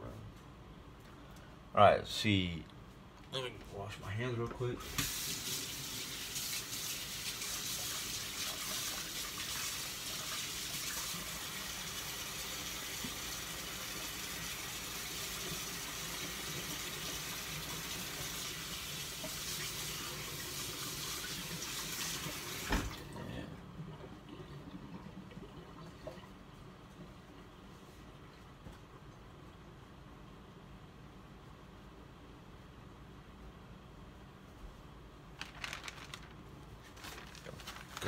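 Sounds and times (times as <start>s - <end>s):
hands washing under tap: 4.8s - 11.6s
tap water running: 4.8s - 23.2s.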